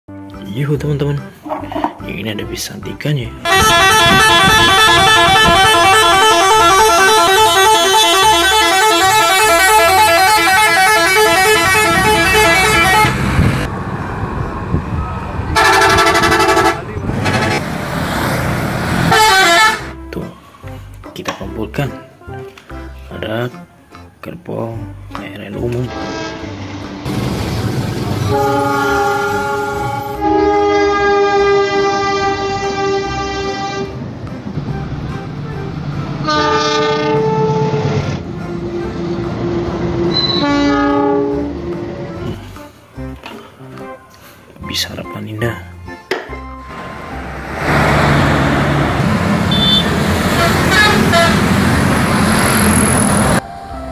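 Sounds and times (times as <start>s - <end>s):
engine and road noise: 0.1s - 53.9s
musical bus horn: 3.4s - 13.7s, 15.5s - 17.7s, 19.0s - 20.1s, 25.7s - 27.1s, 28.2s - 42.7s, 46.7s - 53.9s
passing train noise: 3.4s - 21.0s, 25.7s - 44.6s, 46.1s - 53.9s.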